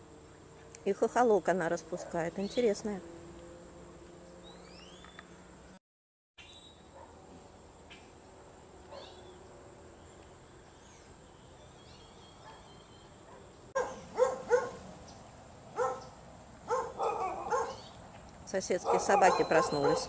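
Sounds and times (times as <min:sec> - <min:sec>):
dogs barking: 0:06.9 - 0:07.2, 0:08.9 - 0:09.2, 0:12.4 - 0:14.8, 0:15.7 - 0:18.0, 0:18.8 - 0:20.0.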